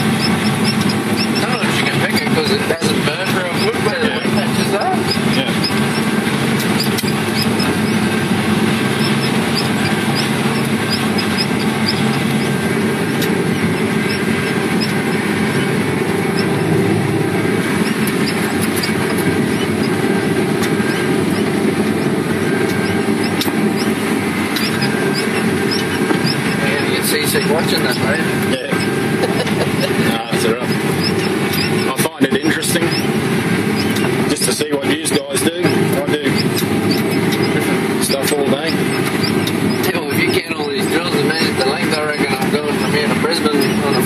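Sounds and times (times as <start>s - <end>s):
engine and machinery drone: 0.0s - 44.0s
small ticks: 24.6s - 26.6s.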